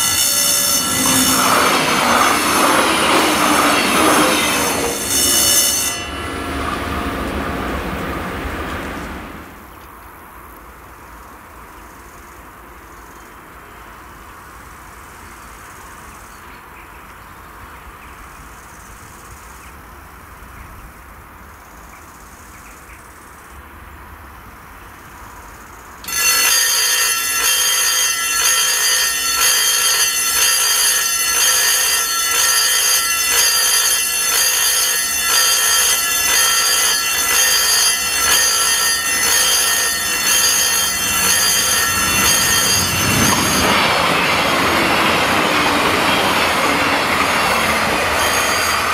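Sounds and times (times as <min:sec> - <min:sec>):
level crossing warning bell: 0:00.0 - 0:09.6, 0:26.0 - 0:48.9.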